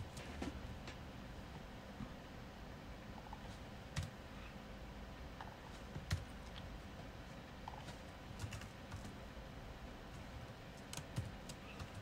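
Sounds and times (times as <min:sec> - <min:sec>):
low steady hum: 0:00.0 - 0:12.0
computer keyboard keystrokes: 0:08.4 - 0:09.2, 0:10.8 - 0:12.0.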